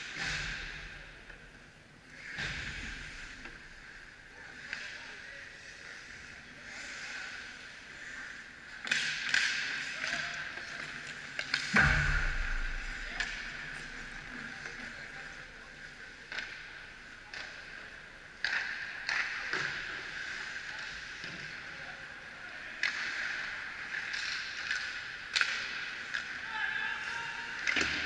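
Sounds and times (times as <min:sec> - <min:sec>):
sticks and puck clacking: 0:06.8 - 0:21.7, 0:22.8 - 0:28.0
heavy knock with low rumble: 0:11.8 - 0:13.2.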